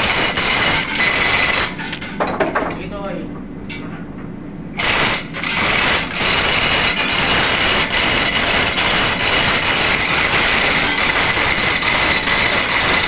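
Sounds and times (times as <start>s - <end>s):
engine-room machinery running: 0.0s - 2.2s, 4.8s - 13.0s.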